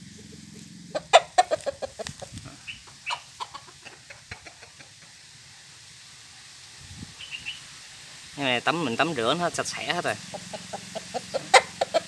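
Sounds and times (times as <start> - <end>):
rooster clucking: 0.0 - 5.3, 9.7 - 12.0.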